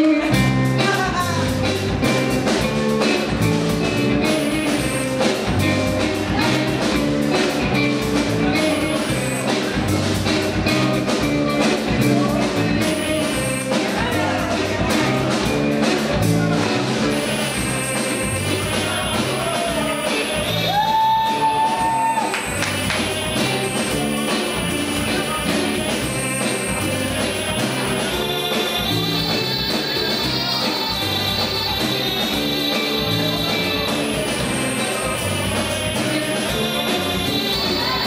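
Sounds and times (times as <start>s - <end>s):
live rock band playing: 0.0s - 38.0s.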